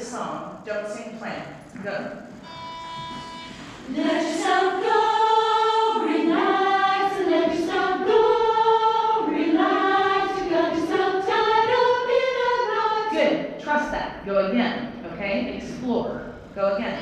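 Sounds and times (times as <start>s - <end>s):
group of voices singing: 3.5s - 13.6s.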